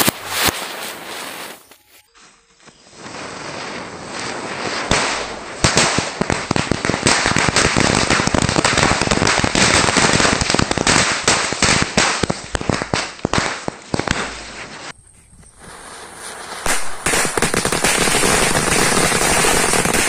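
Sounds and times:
firecrackers bursting: 0.0s - 2.1s, 2.7s - 20.0s
firework spinning and hissing: 0.0s - 20.0s.

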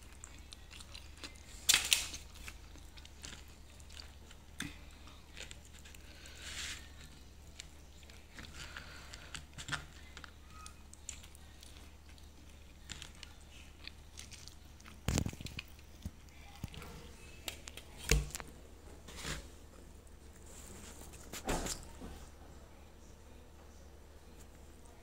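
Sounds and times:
chewing: 0.0s - 18.5s.

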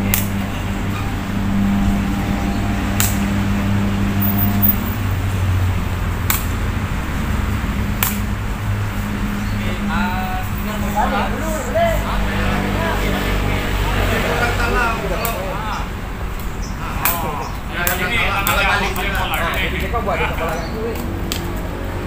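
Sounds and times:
ball being kicked sharp cracks: 0.0s - 0.4s, 3.0s - 3.3s, 6.2s - 6.6s, 7.9s - 8.3s.

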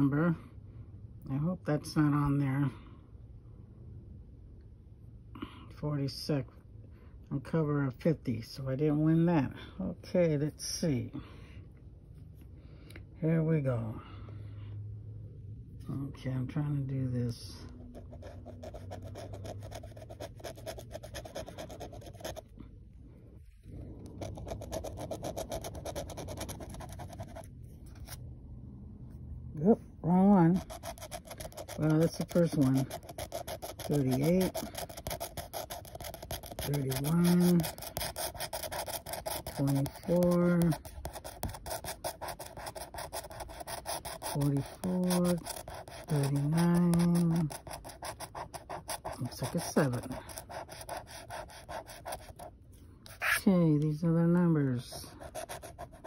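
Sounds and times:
pen scratching ticket: 17.7s - 22.5s, 24.0s - 28.2s, 30.1s - 52.5s, 53.1s - 53.5s, 54.9s - 56.0s.

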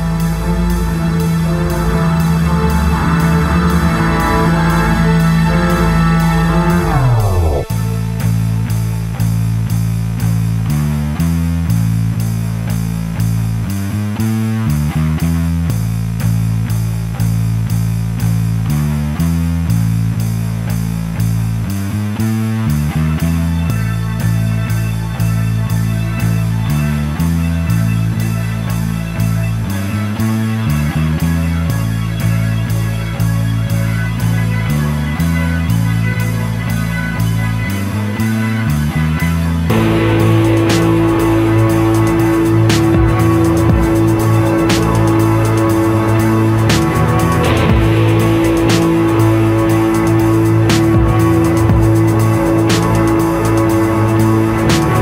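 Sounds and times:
guitar-led background music: 0.0s - 9.7s, 22.2s - 55.0s.

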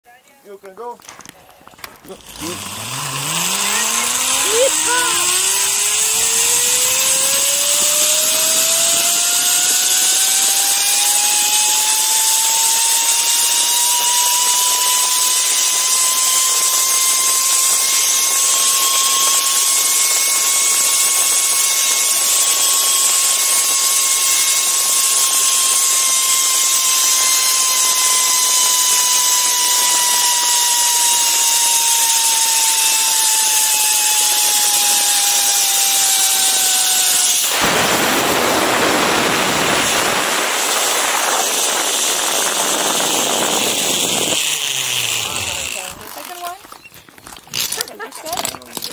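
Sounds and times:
zipline pulley whine: 2.0s - 48.9s.

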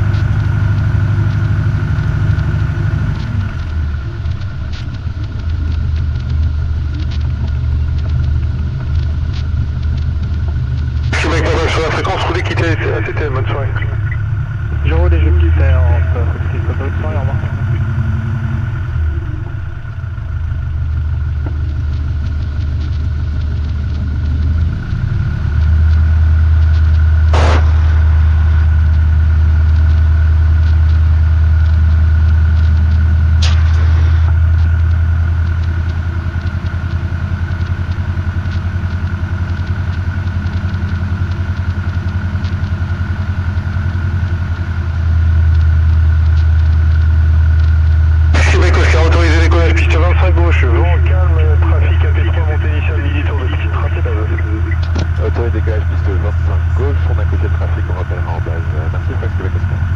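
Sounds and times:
aircraft engine and propeller: 0.0s - 59.9s
sharp clicks: 45.4s - 59.4s.

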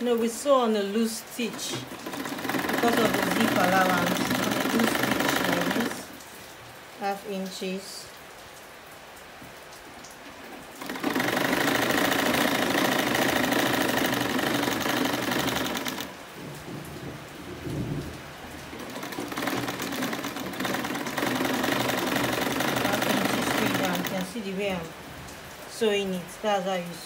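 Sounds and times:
sewing machine stitching: 0.9s - 6.2s, 10.8s - 16.2s, 18.7s - 24.8s.

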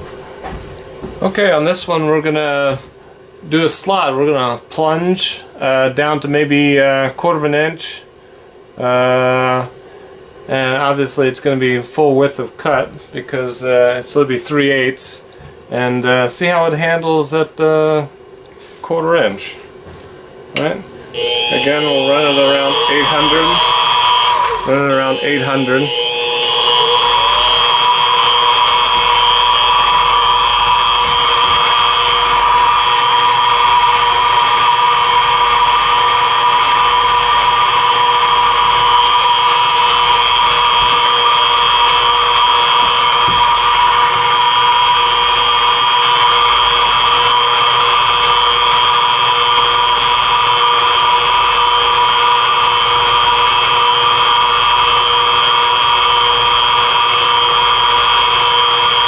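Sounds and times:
milling machine whine: 21.1s - 59.0s.

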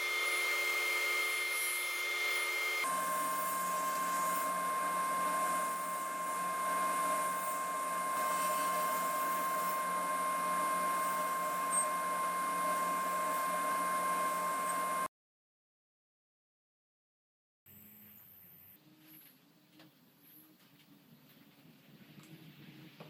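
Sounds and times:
table saw whining: 0.0s - 15.1s.

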